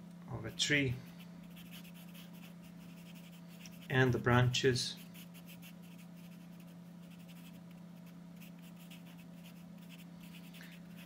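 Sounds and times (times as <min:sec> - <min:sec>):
steady low hum: 0:00.0 - 0:11.0
charcoal scratching on paper: 0:01.4 - 0:04.0, 0:05.0 - 0:11.0.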